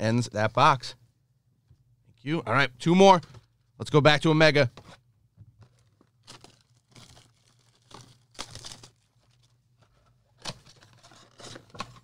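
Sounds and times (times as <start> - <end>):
plastic packaging crinkling and tearing: 5.6 - 12.0.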